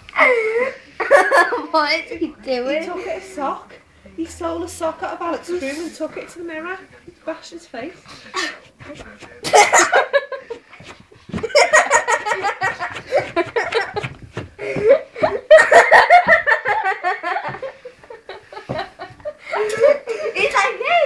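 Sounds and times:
people laughing hard: 9.4 - 20.4.

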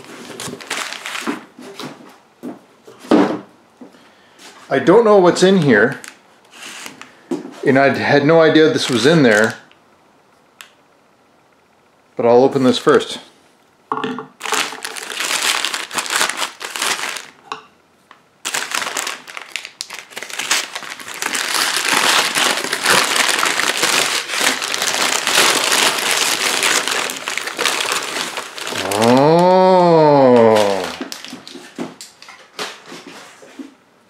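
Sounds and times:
knife slitting paper wrapping: 0.0 - 1.4, 14.4 - 17.3, 18.5 - 29.3
paper tearing and crumpling: 0.0 - 1.4, 6.0 - 7.0, 14.4 - 17.4, 18.4 - 29.4, 30.0 - 31.6
drawn-out vocal sound: 28.7 - 31.0.

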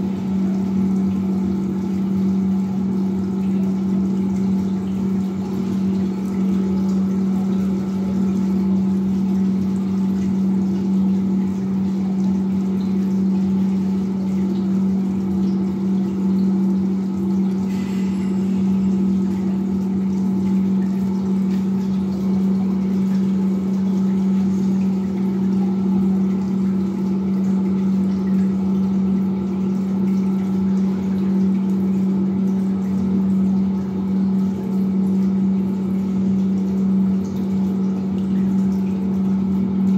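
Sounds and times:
water pump humming: 0.0 - 39.9
faint water hiss: 17.6 - 19.9.

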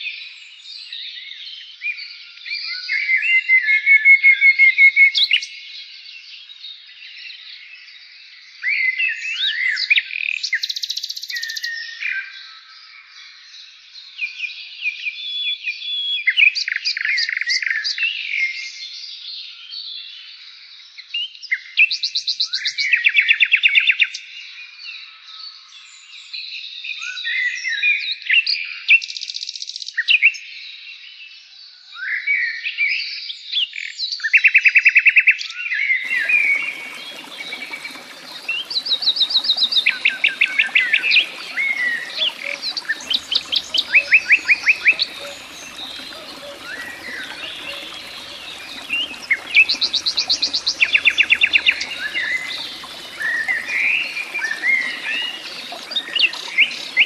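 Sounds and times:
songbirds chirping and trilling: 36.1 - 57.0.

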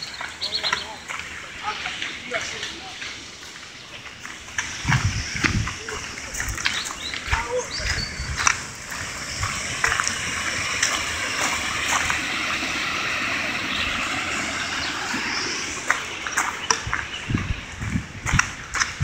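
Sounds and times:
footsteps on gravel: 0.0 - 19.0
river rushing over rocks: 6.7 - 16.6.

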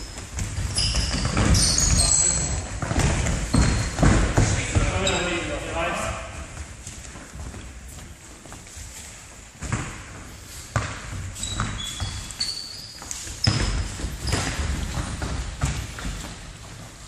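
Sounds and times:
short high squeaks: 0.7 - 2.6, 11.4 - 14.6.

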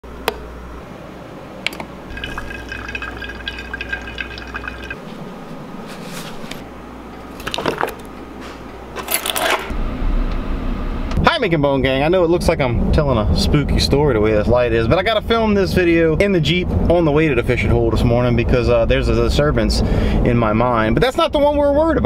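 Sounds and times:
coffee maker humming: 1.7 - 5.0
coffee pouring into metal tumbler: 2.1 - 5.0.

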